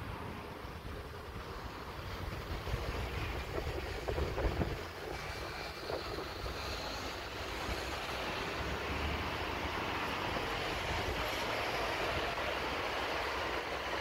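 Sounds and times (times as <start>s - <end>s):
distant steam locomotive rumble: 0.0s - 14.0s
road traffic: 0.0s - 14.0s
wind on microphone: 0.8s - 8.8s.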